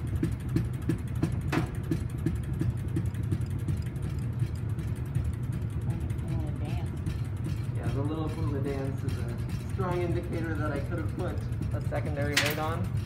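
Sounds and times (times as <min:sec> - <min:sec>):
low mechanical hum: 0:00.0 - 0:13.0
regular ticking: 0:00.0 - 0:13.0
sharp machine click: 0:12.2 - 0:12.8.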